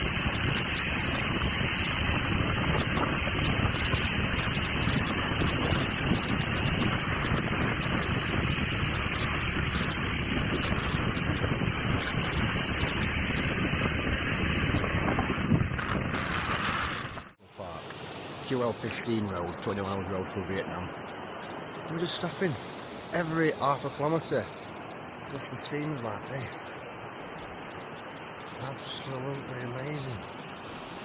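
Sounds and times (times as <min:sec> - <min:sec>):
wind buffeting microphone: 0:00.0 - 0:17.4
road noise: 0:00.0 - 0:31.0.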